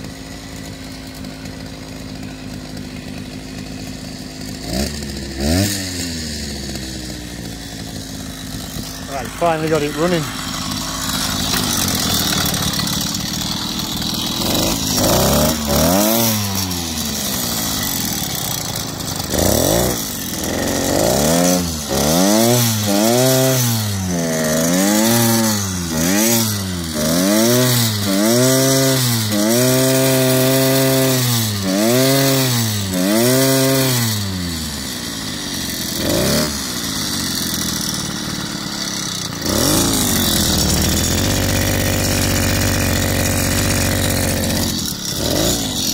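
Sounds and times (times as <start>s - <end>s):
small engine revving: 0.0s - 45.9s.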